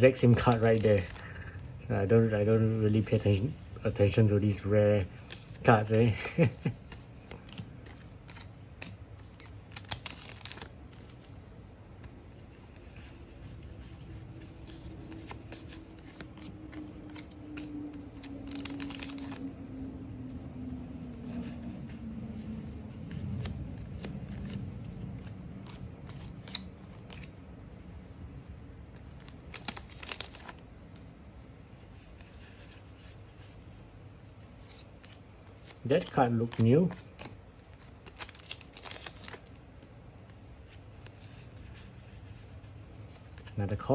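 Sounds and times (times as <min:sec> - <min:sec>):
trading cards rustling: 0:00.0 - 0:43.9
low airplane drone: 0:12.0 - 0:28.3.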